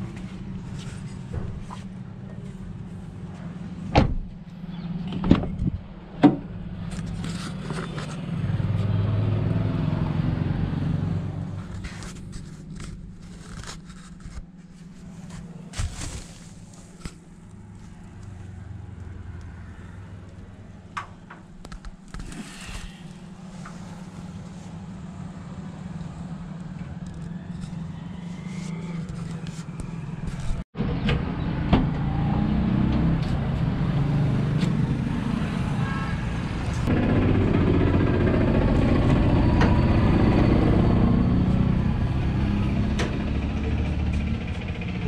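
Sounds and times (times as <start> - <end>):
plastic rustling: 11.8 - 18.0.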